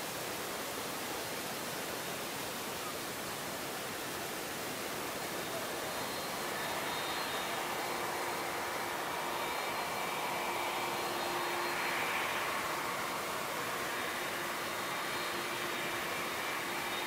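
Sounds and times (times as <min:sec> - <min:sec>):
faint high whining tones: 0:00.1 - 0:17.0
jet engines running: 0:05.1 - 0:17.0.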